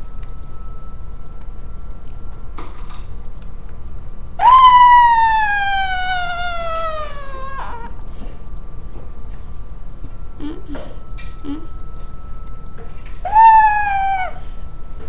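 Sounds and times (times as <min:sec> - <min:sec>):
child screaming: 0:04.4 - 0:07.9, 0:13.3 - 0:14.4.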